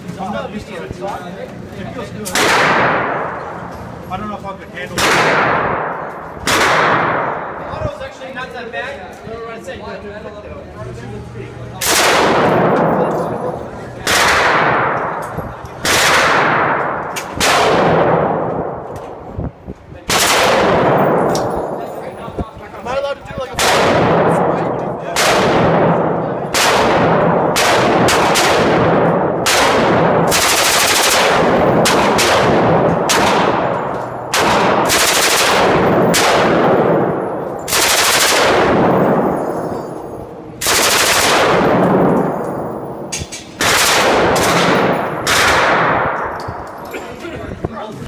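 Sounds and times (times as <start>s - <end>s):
echo of gunfire indoors: 2.2s - 4.1s, 4.8s - 7.9s, 11.8s - 22.3s, 23.4s - 46.9s
machine gun firing bursts: 15.8s - 18.4s, 20.1s - 21.3s, 25.2s - 39.4s, 40.6s - 42.2s, 43.6s - 46.1s.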